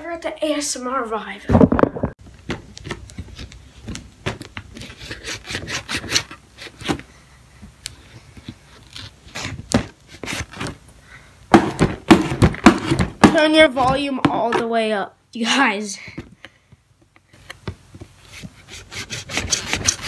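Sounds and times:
knife slicing tape and cardboard: 4.3s - 7.1s, 8.5s - 10.8s, 18.3s - 20.0s.

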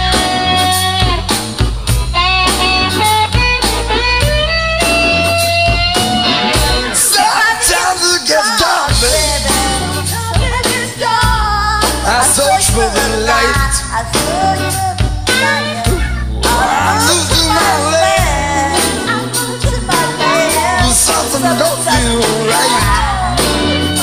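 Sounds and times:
lead melody with bending notes: 0.0s - 7.9s, 8.6s - 24.0s
stepping bass line: 0.0s - 7.9s, 8.9s - 24.0s.

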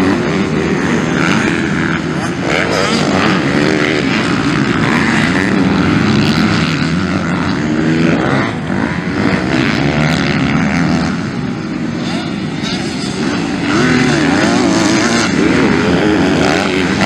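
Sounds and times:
motocross bikes revving: 0.0s - 17.0s.

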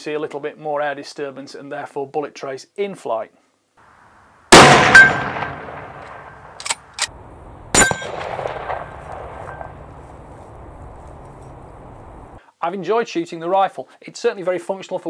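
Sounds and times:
rifle shot echoing: 4.5s - 12.0s
sharp metallic clang: 4.6s - 7.1s, 7.8s - 9.8s
metallic clicks: 6.0s - 7.2s.

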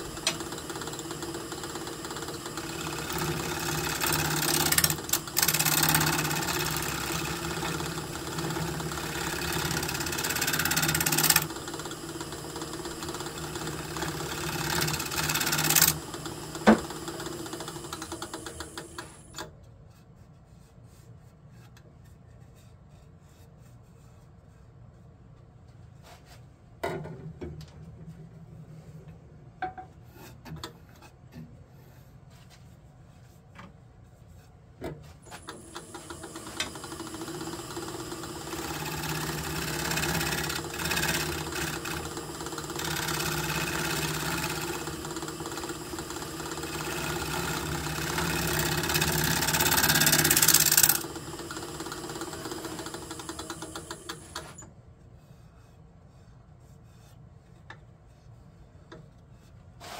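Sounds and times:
wood lathe motor hum: 0.0s - 19.4s, 35.3s - 54.6s.

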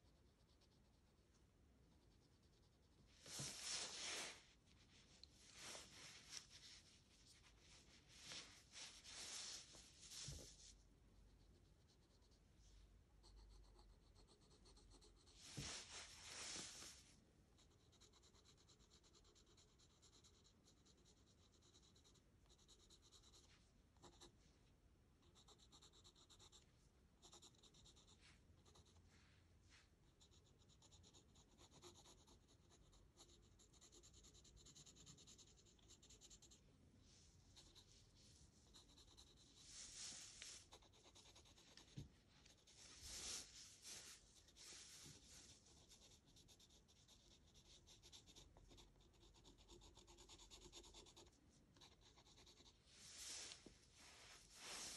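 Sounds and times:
pencil scratching on paper: 0.0s - 1.1s, 13.2s - 16.9s, 17.6s - 24.4s, 25.2s - 29.0s, 30.1s - 36.6s, 37.5s - 53.7s.

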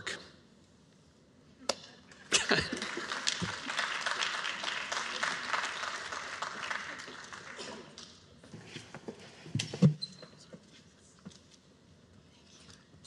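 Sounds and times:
audience applauding: 2.1s - 8.0s.

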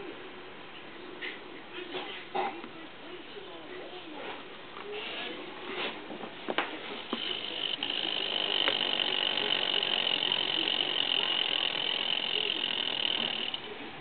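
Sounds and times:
snake tail rattling dry buzz: 7.1s - 13.7s.

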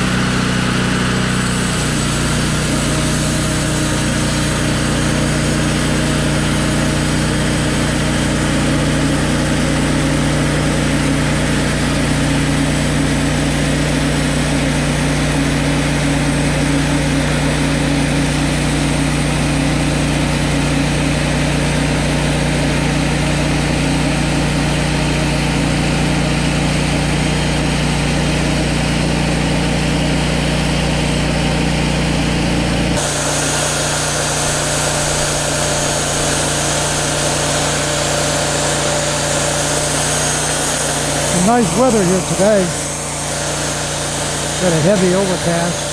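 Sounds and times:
bandsaw blade cutting log: 0.0s - 29.6s, 32.1s - 45.9s
sawmill engine hum: 0.0s - 45.9s.

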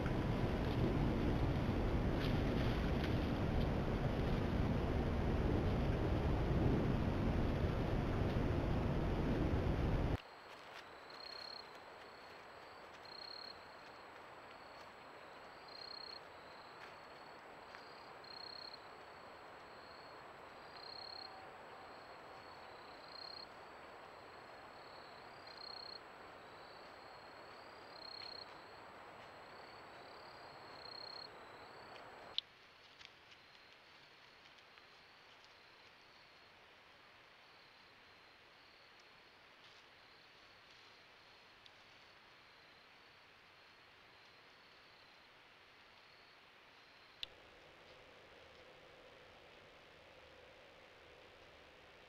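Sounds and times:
microphone hiss: 0.0s - 52.0s
insects chirping: 10.2s - 32.4s, 33.0s - 52.0s.

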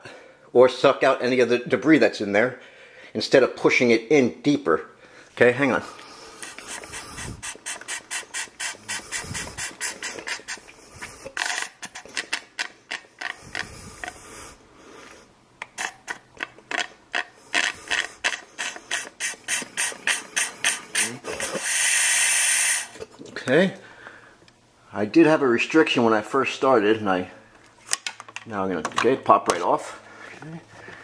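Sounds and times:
rhythmic sucking on plastic tube: 5.9s - 15.3s, 17.2s - 23.0s.

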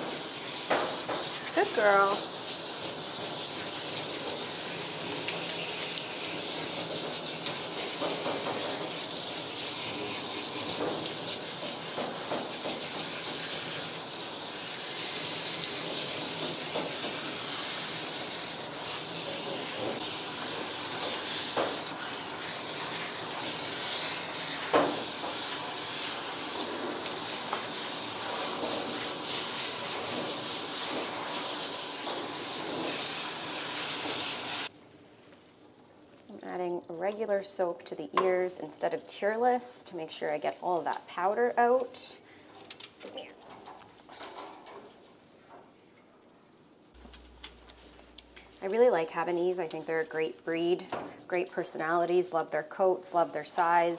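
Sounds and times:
water spraying from hose: 0.0s - 34.7s.

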